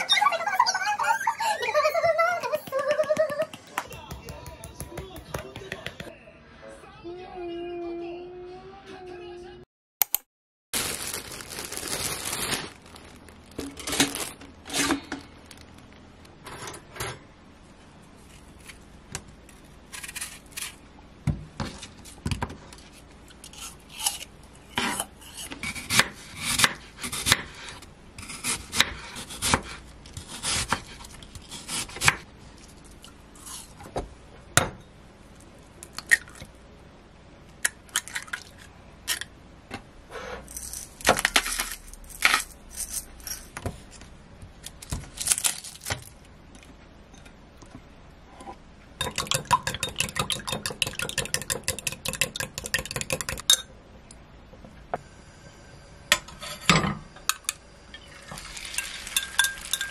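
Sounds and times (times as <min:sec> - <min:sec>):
eggs beaten in glass mug: 0:49.0 - 0:53.6, 0:58.4 - 0:59.9
utensils and dishes clinking: 0:49.0 - 0:53.7, 0:56.2 - 0:59.9.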